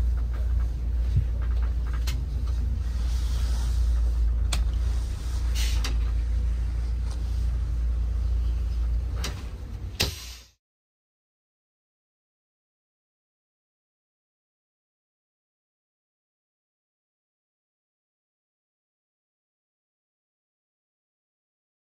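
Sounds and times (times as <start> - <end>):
bus engine rumbling: 0.0 - 10.6.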